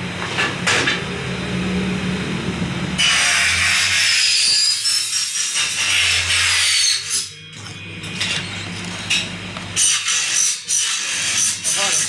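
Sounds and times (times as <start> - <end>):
power saw cutting aluminium: 3.0 - 7.4, 9.8 - 12.0.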